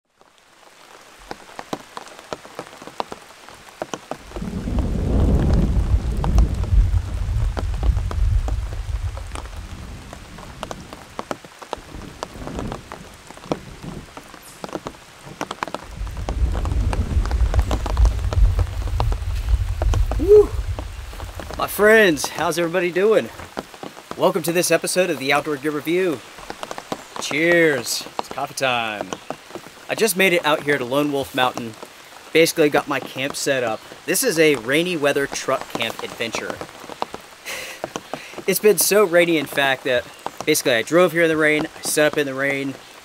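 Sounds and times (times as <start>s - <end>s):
heavy rain falling: 0.1s - 43.0s
thunder rumbling: 4.2s - 22.7s.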